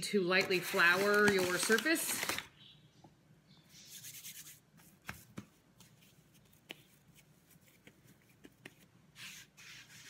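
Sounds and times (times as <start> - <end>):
hands rubbing flour on countertop: 3.7 - 10.0.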